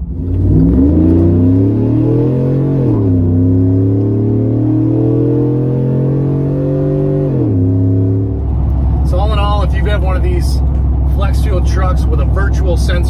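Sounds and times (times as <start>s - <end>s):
truck engine accelerating: 0.0s - 13.0s.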